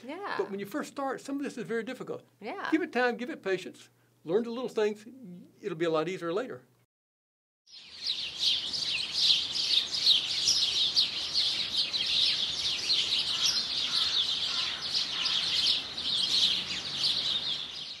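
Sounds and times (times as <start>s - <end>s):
songbirds chirping: 7.7s - 18.0s.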